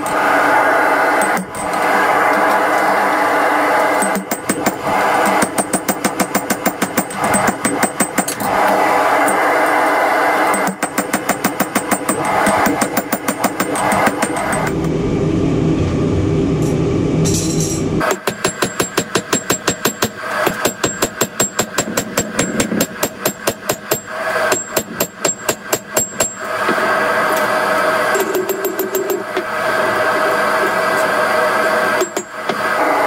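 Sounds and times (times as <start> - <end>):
steady rushing noise: 0.0 - 18.1
hammer striking steel on anvil: 3.8 - 8.4, 10.4 - 14.9, 17.3 - 26.5, 28.2 - 29.5, 32.0 - 32.6.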